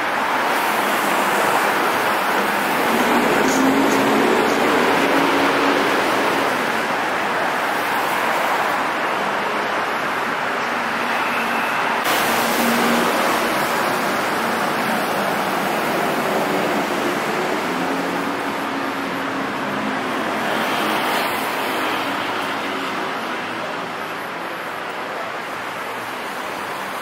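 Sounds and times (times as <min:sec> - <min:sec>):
traffic on wet streets: 0:00.0 - 0:27.0
rain hissing: 0:12.1 - 0:17.3.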